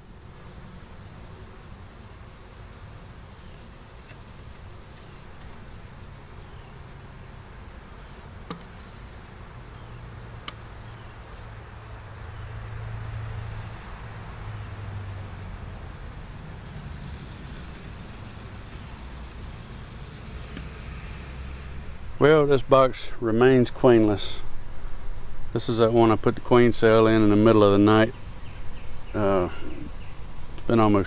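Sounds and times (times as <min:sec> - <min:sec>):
bees buzzing: 0:00.0 - 0:31.0
hive tool clicking on frames: 0:08.4 - 0:08.7, 0:10.4 - 0:10.6.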